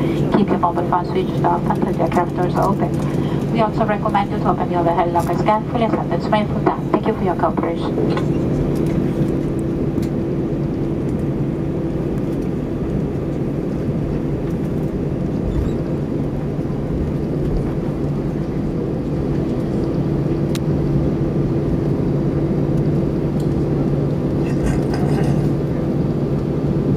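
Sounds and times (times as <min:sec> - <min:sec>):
aircraft engines idling in cabin: 0:00.0 - 0:26.9.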